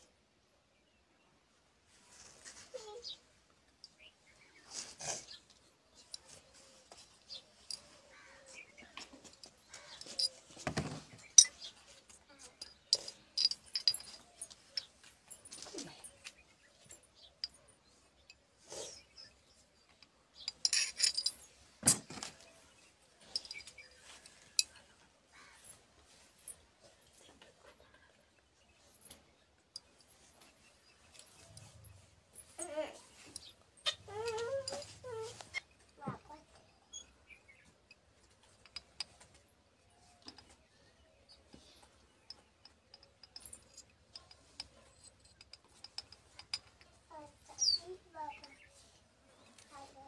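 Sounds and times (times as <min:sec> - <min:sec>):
metal rod clinking in glass bottle: 0:08.9 - 0:11.9, 0:12.6 - 0:19.3, 0:20.4 - 0:22.6.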